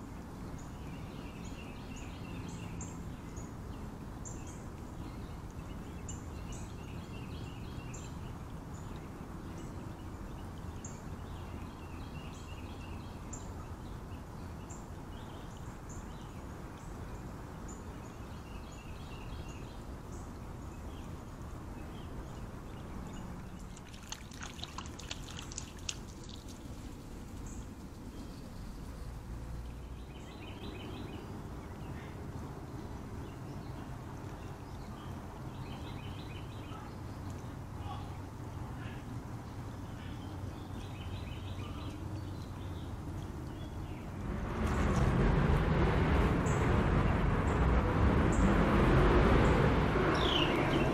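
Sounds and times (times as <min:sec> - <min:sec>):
small birds chirping: 0:00.0 - 0:44.2, 0:49.4 - 0:50.9
creek water trickling: 0:00.0 - 0:50.9
sharp clicks and splashes: 0:23.0 - 0:28.2.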